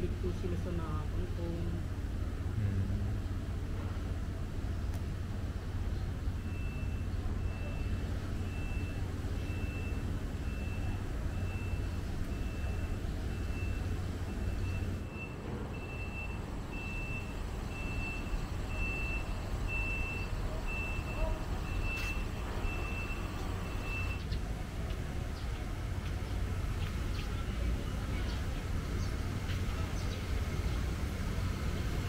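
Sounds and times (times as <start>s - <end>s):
steady low rumble: 0.0s - 6.3s.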